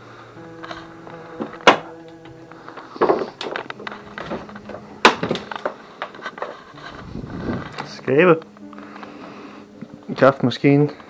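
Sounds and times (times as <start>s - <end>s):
sharp knocks: 4.2s - 5.8s.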